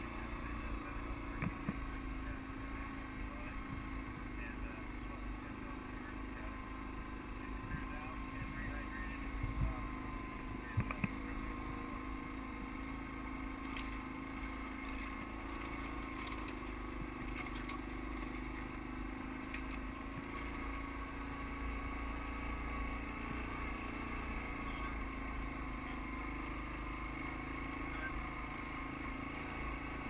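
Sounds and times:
atv engine running: 0:00.0 - 0:30.0
faint clicks and rattles: 0:14.8 - 0:18.7.

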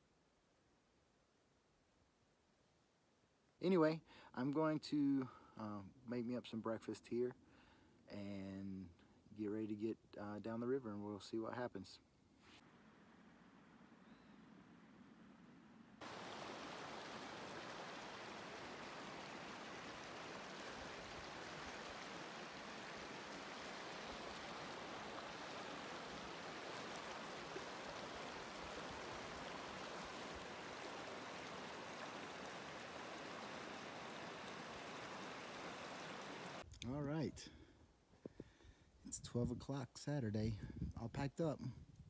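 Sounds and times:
river flowing over rocks: 0:16.0 - 0:36.6.

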